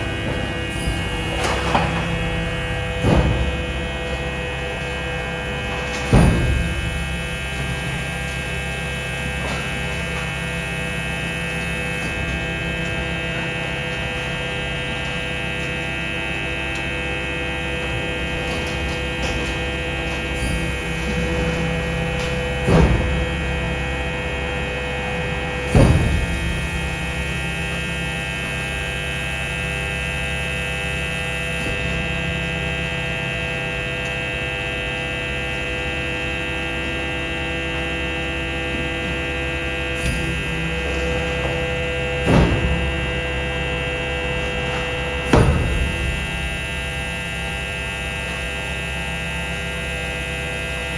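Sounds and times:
sharp knocks: 0.0 - 8.6, 17.8 - 24.0, 25.4 - 26.8, 40.1 - 43.8, 44.6 - 46.8
electric truck equipment hum: 0.0 - 50.9.

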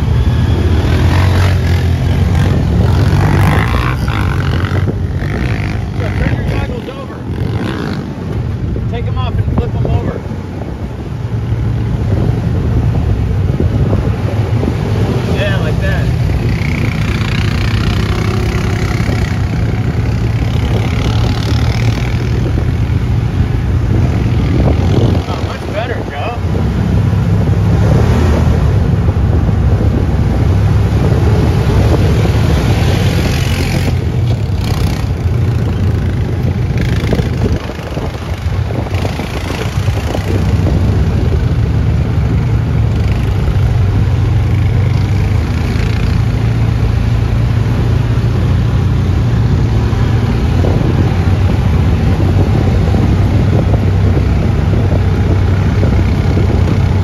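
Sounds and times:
vehicle engine running: 0.0 - 57.0
tyre and rattle noise: 31.8 - 46.6.

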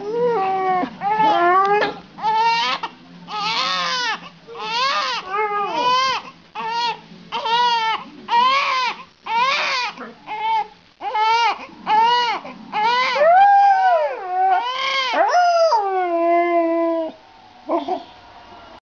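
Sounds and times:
baby crying: 0.0 - 13.3, 14.1 - 15.8
husky howling: 11.9 - 18.1.

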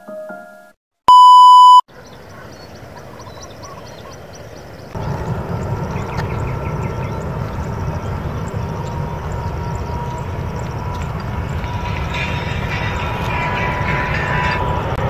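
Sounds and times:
electronic beep: 1.1 - 1.8
jet airliner rumble: 4.8 - 15.0.

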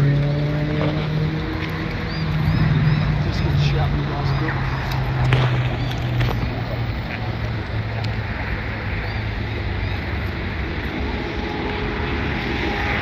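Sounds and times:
engine drone: 0.0 - 13.0.

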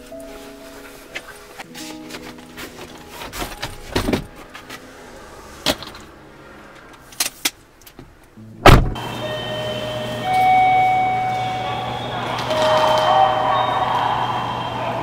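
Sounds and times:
car door slamming: 8.6 - 9.0
faint steady tones: 9.0 - 15.0.

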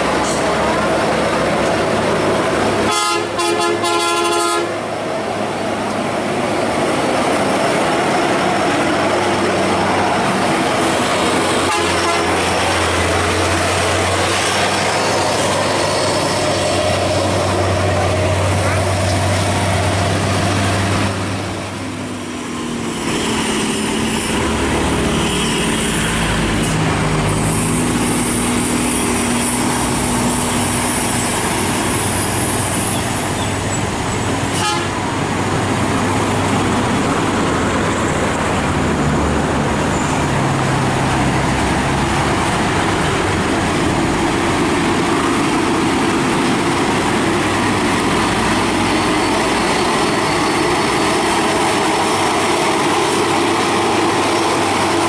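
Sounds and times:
dense traffic noise: 0.0 - 55.0
diesel truck engines: 0.0 - 55.0
vehicle horn: 2.9 - 4.7, 11.6 - 12.4, 34.6 - 35.0.

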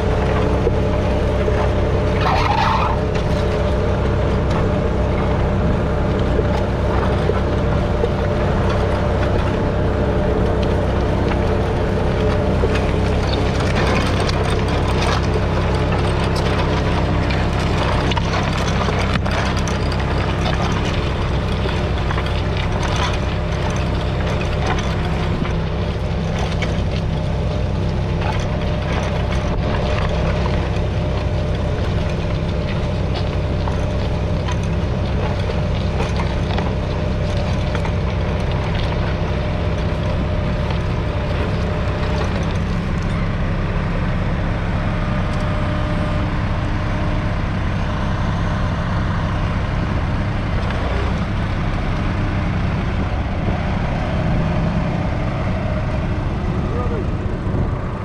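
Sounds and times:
tractor diesel engine under load: 0.0 - 58.0
clicks and rattles: 12.2 - 43.2.

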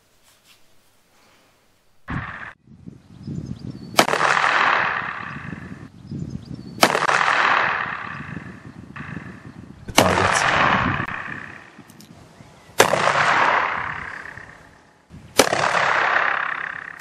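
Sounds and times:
revolver shots with echo: 6.8 - 9.4, 12.8 - 14.6, 15.4 - 17.0.

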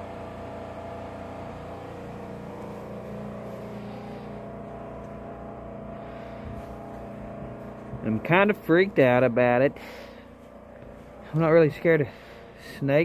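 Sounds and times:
machine humming: 0.0 - 13.0.

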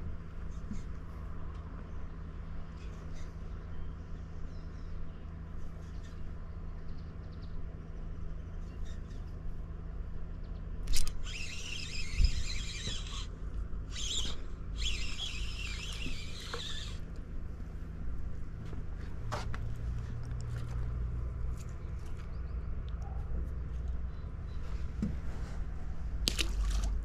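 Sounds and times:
fishing reel whirring: 10.9 - 13.3, 13.9 - 17.1.

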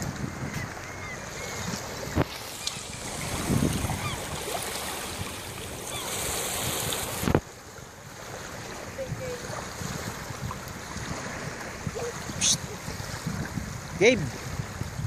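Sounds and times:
small waves lapping: 0.0 - 15.0
wind buffeting microphone: 0.0 - 15.0.

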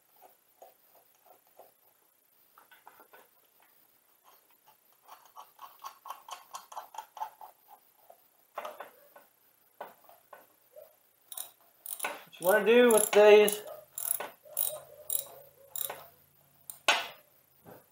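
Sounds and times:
socket ratchet clicking: 11.3 - 12.2, 12.9 - 16.0.

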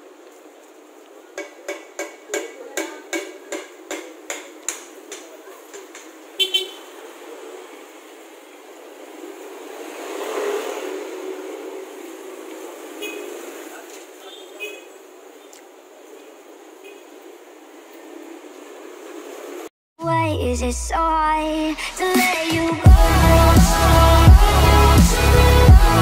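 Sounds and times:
sharp knocks: 1.4 - 6.2
vehicle passing: 6.3 - 14.3
vehicle horn toot: 6.4 - 6.9, 13.0 - 13.4.

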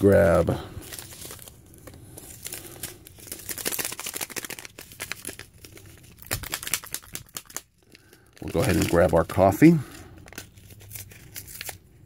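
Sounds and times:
plastic packaging crinkling: 0.0 - 12.0
packet being torn open: 0.8 - 11.9.

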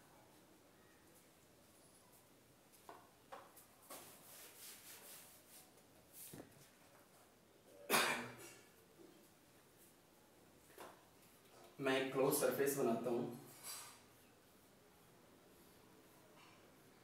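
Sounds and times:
duster wiping whiteboard: 3.8 - 6.7.

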